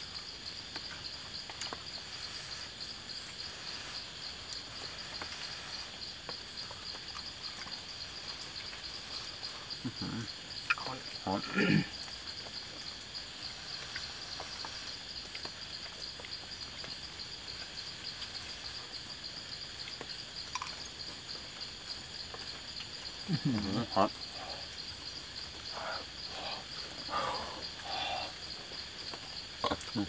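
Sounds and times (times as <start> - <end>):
frogs trilling: 0.0 - 30.0
short low frog calls: 9.1 - 12.1, 23.2 - 28.7.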